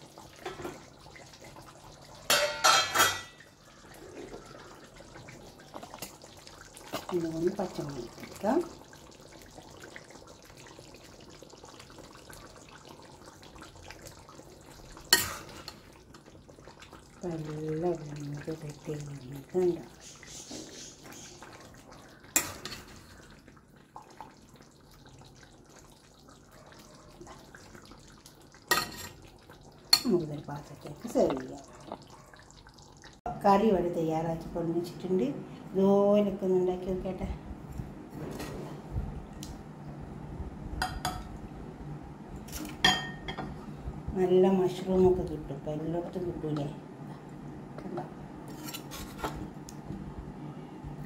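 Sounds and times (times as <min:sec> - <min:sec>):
low steady background noise: 0:00.0 - 0:51.0
ladle clinking against pan: 0:02.3 - 0:03.4
metal kitchenware clattering: 0:02.3 - 0:03.4.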